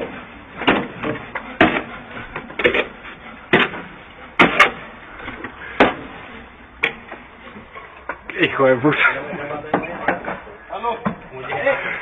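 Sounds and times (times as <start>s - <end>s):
knocks and scrapes of building material: 0.0s - 8.2s, 9.0s - 11.3s.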